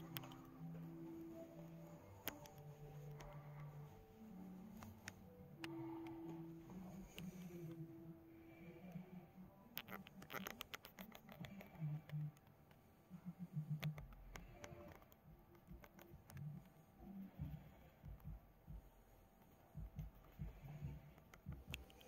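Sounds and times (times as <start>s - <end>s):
handling clicks and scratches: 9.8s - 12.8s.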